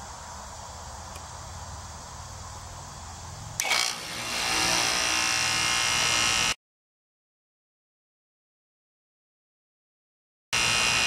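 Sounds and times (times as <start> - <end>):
compressor whirring and humming: 3.6 - 6.6, 10.6 - 11.0.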